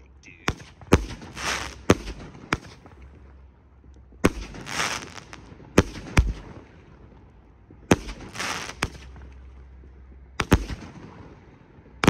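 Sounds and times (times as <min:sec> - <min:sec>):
firework bangs: 0:00.0 - 0:12.0
firework rushing hiss: 0:00.5 - 0:03.0, 0:04.3 - 0:06.8, 0:07.9 - 0:09.4.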